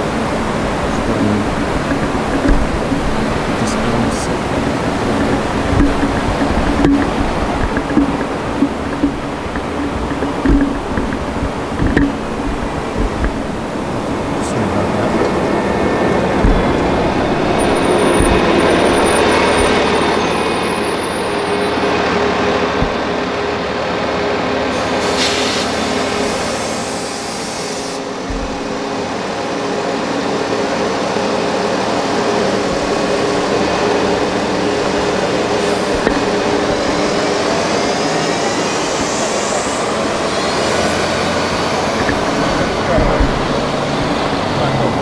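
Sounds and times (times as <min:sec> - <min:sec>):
bus engine running: 0:00.0 - 0:45.0
vehicle whine approaching: 0:00.0 - 0:45.0
vehicles driving by: 0:00.0 - 0:45.0.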